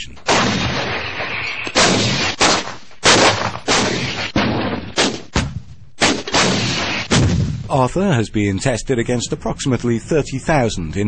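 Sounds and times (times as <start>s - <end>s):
artillery guns firing: 0.2s - 7.8s.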